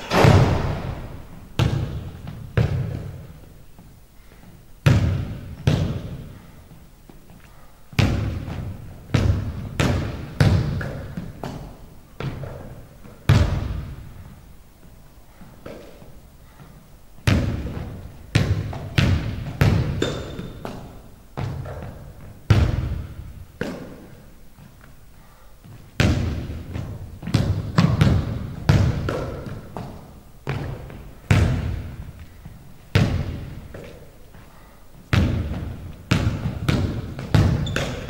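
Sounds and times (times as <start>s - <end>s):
basketball bouncing on wooden floor: 0.0s - 3.9s, 4.8s - 6.4s, 7.9s - 14.4s, 17.2s - 24.1s, 25.6s - 34.1s, 35.1s - 38.0s.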